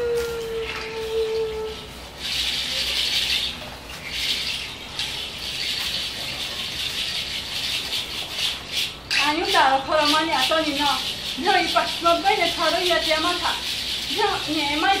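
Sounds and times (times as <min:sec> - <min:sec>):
bare feet stirring dry leaves: 0:00.0 - 0:15.0
straw skirt swishing: 0:00.0 - 0:15.0.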